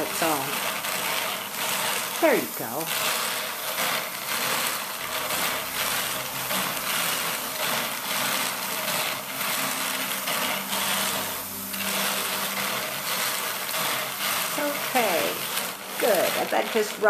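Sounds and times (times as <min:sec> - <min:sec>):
drum carder rasping hiss: 0:00.0 - 0:17.0
low mechanical hum: 0:00.0 - 0:17.0.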